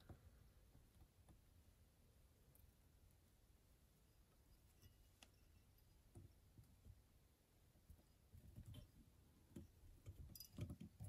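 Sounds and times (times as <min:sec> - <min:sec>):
soft knocks and small clicks: 0:07.8 - 0:11.0.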